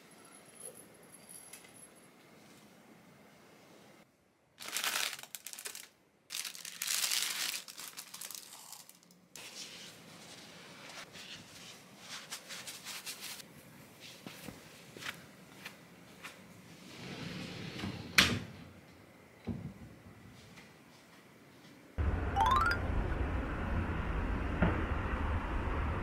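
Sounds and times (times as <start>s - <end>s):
crackly rustling: 4.6s - 9.2s
plastic wrapping crinkling and tearing: 4.6s - 9.2s.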